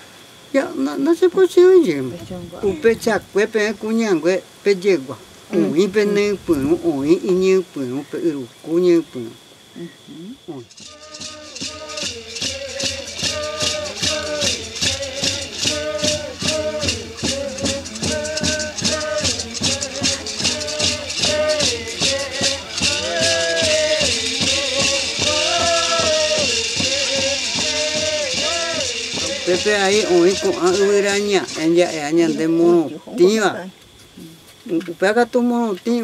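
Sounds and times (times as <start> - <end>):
rattle shaken in a beat: 10.5 - 32.9
ceremonial singing: 10.7 - 32.6.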